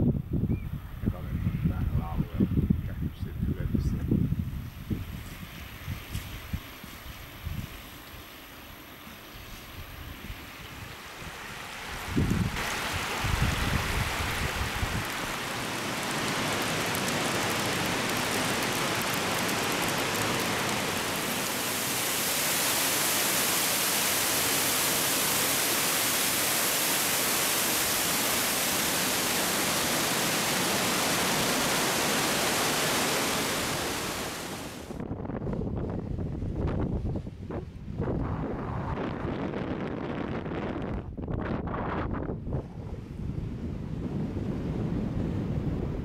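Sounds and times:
waterfall rushing in a cave: 0:12.6 - 0:34.9.

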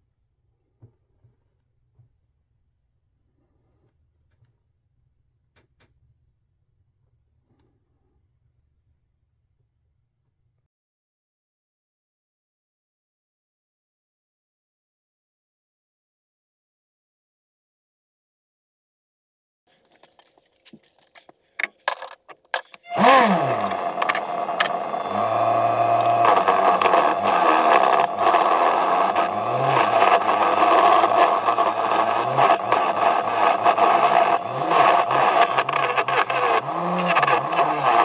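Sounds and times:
turning tool scraping wood: 0:19.7 - 0:38.0
scattered clicks: 0:19.8 - 0:24.8, 0:25.6 - 0:38.0
wood lathe humming: 0:22.8 - 0:38.0.

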